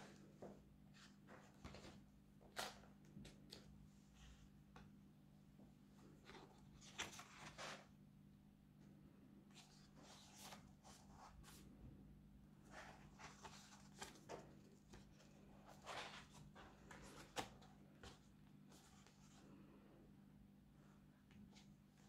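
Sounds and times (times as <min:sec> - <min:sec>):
low steady hum: 0:00.0 - 0:22.0
paper pages rustling: 0:00.9 - 0:03.7, 0:06.1 - 0:07.9, 0:12.7 - 0:19.5.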